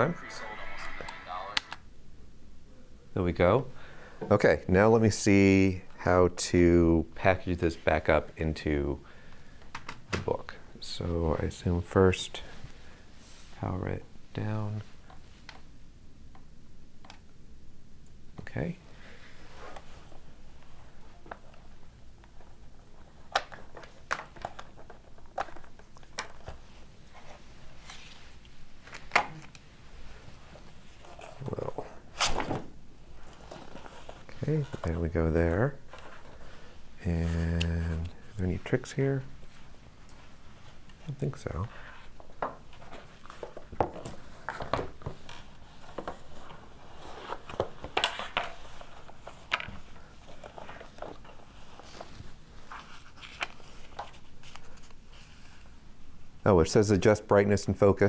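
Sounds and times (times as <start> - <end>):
soft rustle: 35.8 - 55.8.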